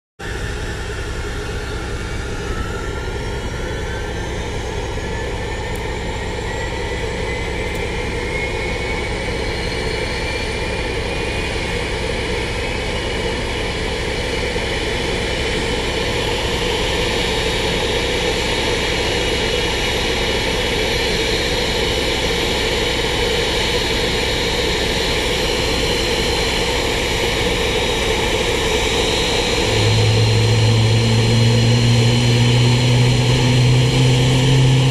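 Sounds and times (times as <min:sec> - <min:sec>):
jet engines roaring and whining: 0:00.2 - 0:34.9.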